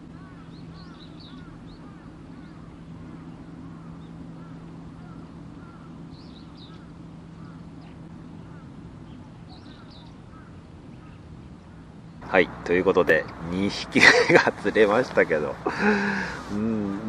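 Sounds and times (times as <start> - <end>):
high bird chirps: 0.0 - 12.3
birds calling: 0.0 - 17.0
steady low hum: 0.0 - 17.0.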